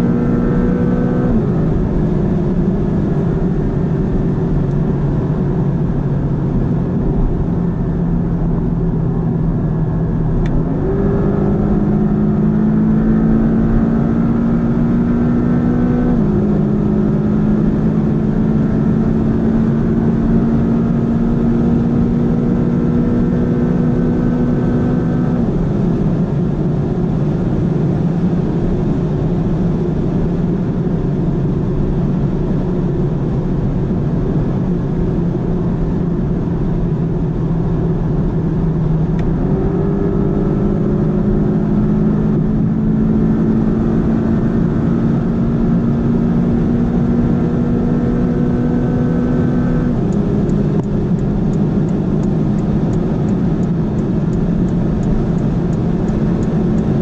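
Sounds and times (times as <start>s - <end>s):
car engine at high speed: 0.0s - 57.0s
road noise: 0.0s - 57.0s.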